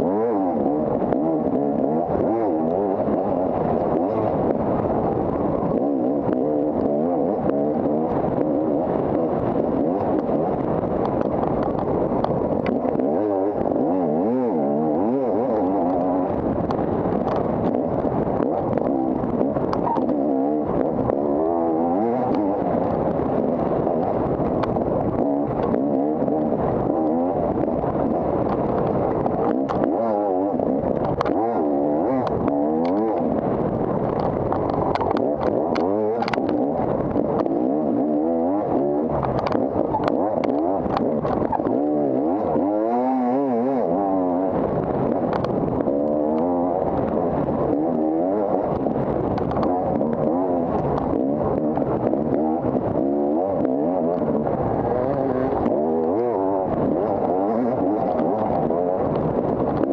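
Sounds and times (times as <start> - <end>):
dirt bike engine revving: 0.0 - 59.9
sharp clicks and clatter: 0.0 - 59.9.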